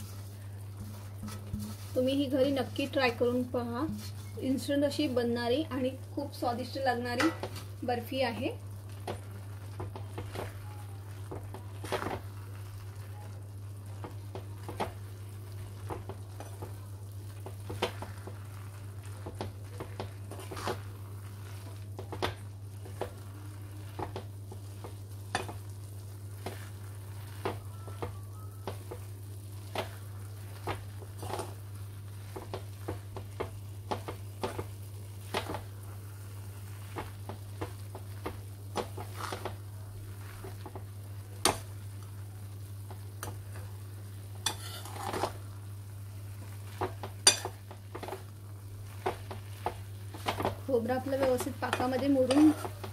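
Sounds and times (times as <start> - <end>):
syrup sizzling: 0.0 - 52.9
metal spatula scraping pan: 44.4 - 45.4, 51.2 - 52.9.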